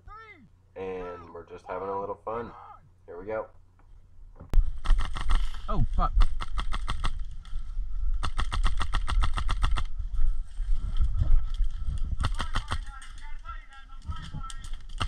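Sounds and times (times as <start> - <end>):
low microphone rumble: 4.0 - 15.0
airsoft rifle full-auto bursts: 6.2 - 7.2, 8.2 - 9.9, 12.2 - 13.1.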